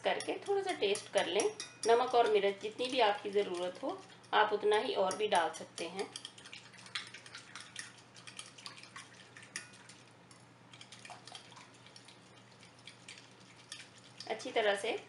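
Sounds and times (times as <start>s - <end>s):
spoon tapping glass bowl: 0.2s - 2.4s, 5.1s - 6.3s
liquid sloshing: 5.0s - 14.5s.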